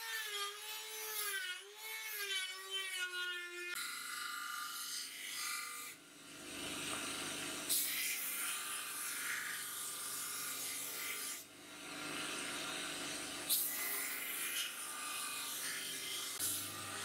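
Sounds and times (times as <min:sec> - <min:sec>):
belt grinder grinding blade: 0:06.7 - 0:17.0.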